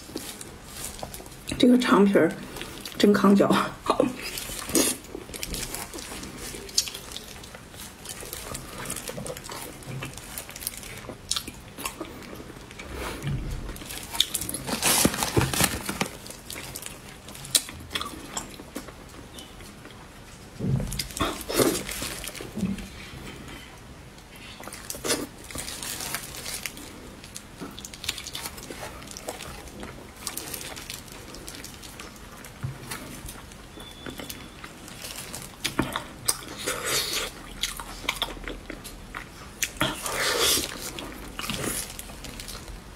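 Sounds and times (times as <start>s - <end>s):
wet chewing and smacking: 4.2s - 12.9s, 24.6s - 42.7s.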